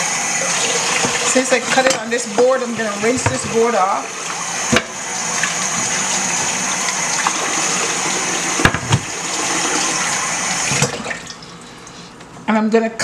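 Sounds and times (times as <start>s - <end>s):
tap running into a sink: 0.6s - 10.0s, 10.6s - 11.4s
cutting board knocks: 2.8s - 3.6s, 8.6s - 9.1s.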